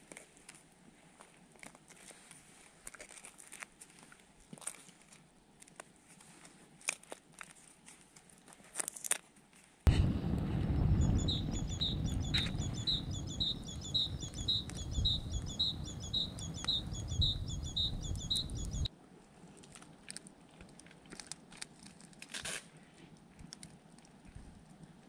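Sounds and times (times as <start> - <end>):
campfire crackling: 9.9 - 18.9
low rumble: 9.9 - 18.9
songbird two-note call: 10.9 - 18.9.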